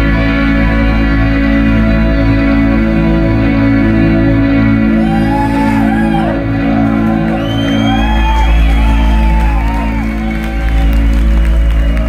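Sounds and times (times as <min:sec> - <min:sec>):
sustained electric guitar chord: 0:00.0 - 0:12.0
audience whooping and shouting: 0:04.9 - 0:12.0.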